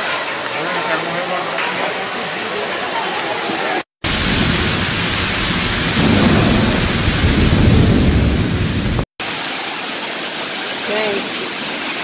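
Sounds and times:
rainwater pouring onto floor: 0.0 - 12.0.

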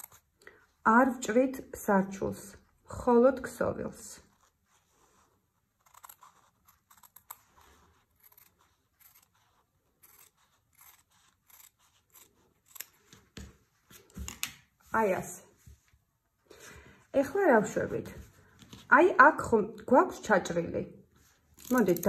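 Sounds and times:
fabric scissors snipping: 0.0 - 0.3, 5.7 - 14.5.

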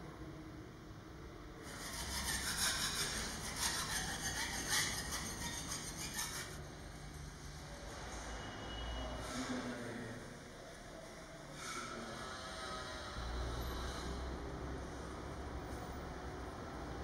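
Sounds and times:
scraper rasping on plaster wall: 1.6 - 6.6.

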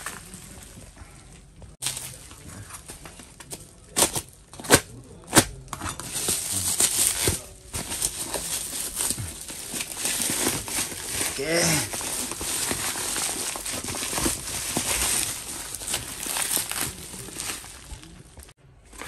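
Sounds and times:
bubble wrap crinkling: 0.0 - 19.0.

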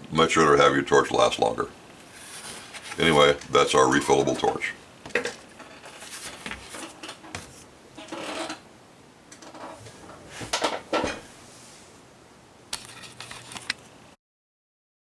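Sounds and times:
rubbing and scraping on work surface: 2.0 - 3.4, 5.5 - 8.6
knocks of objects set down: 5.0 - 7.6.

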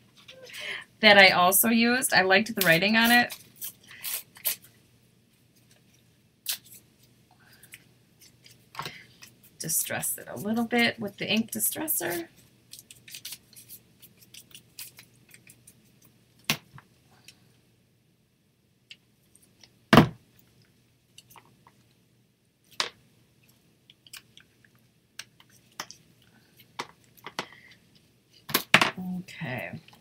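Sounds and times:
faint paper rustles and scrapes: 12.1 - 15.8.

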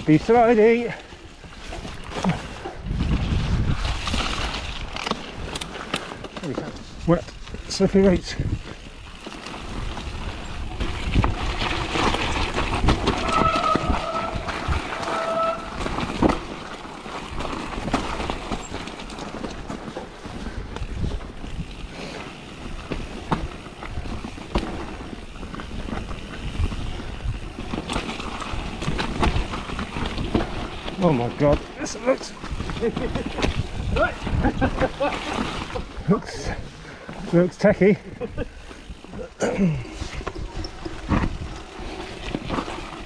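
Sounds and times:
bike knocking and rattling: 0.0 - 43.0
bike tyres rolling over dirt: 0.0 - 43.0
wind on microphone: 2.2 - 4.2
short high squeal: 13.2 - 15.8.

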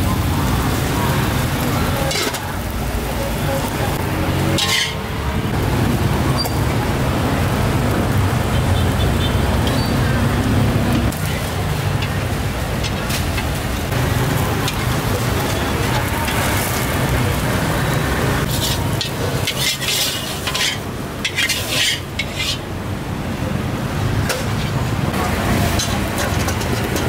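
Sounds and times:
background voices: 0.0 - 8.1, 10.1 - 21.8
traffic rumble: 0.0 - 27.0.

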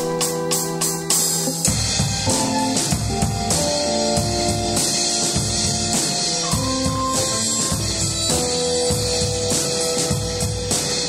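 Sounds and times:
cymbals washing: 0.0 - 11.0
double bass: 0.0 - 11.0
drum kit beat: 0.0 - 11.0
held melody notes: 0.0 - 11.0.

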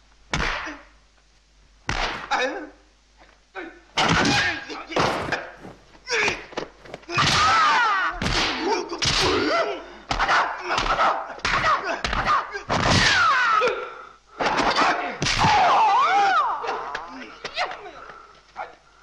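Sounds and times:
punch and kick impacts: 0.3 - 0.8, 1.9 - 2.4, 4.0 - 9.5, 10.1 - 13.2
man's high-pitched battle cries: 6.1 - 6.5, 7.1 - 13.9.

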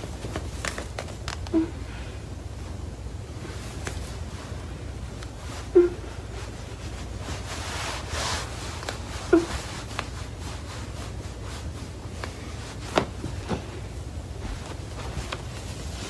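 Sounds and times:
steady low hum: 0.0 - 16.0
fabric rubbing and stretching: 3.4 - 16.0.

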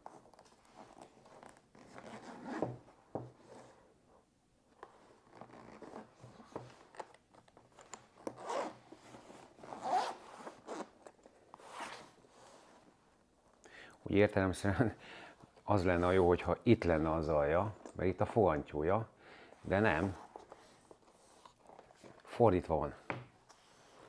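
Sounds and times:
zipper rasping open: 0.0 - 2.8, 5.0 - 7.2, 7.8 - 12.2.

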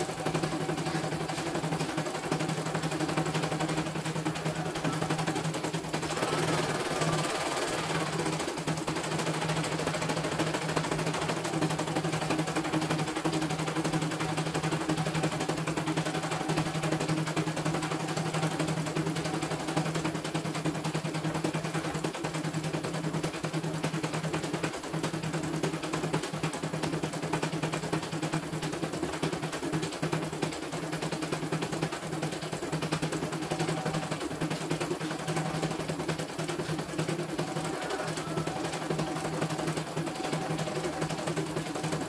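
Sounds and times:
embroidery machine needle rattle: 0.0 - 20.9, 31.2 - 42.0
motor hum: 0.0 - 22.3, 30.2 - 42.0.

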